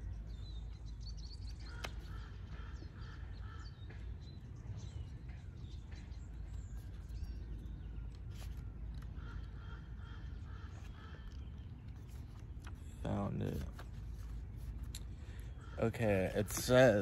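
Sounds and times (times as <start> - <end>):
low outdoor rumble: 0.0 - 17.0
small birds chirping: 0.0 - 17.0
crow cawing: 1.6 - 4.0, 9.1 - 11.7, 15.2 - 16.0.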